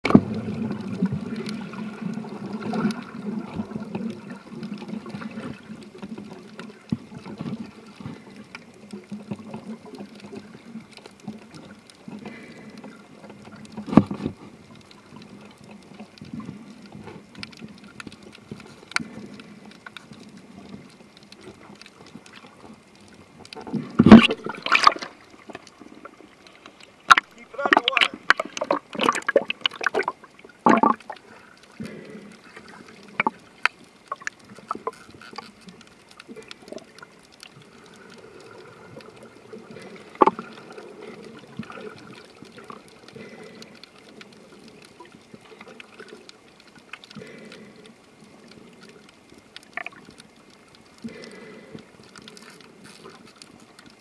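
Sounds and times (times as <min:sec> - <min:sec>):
water splashing and bubbling: 0:00.0 - 0:54.0.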